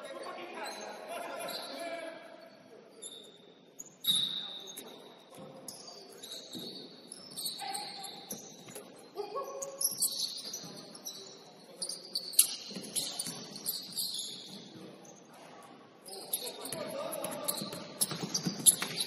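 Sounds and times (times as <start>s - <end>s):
shoes squeaking on gym floor: 0.0s - 15.4s, 16.0s - 19.0s.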